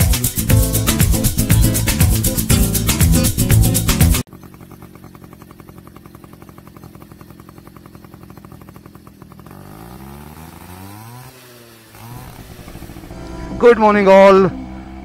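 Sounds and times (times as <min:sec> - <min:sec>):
small motorbike engine idling and revving: 0:00.0 - 0:15.0.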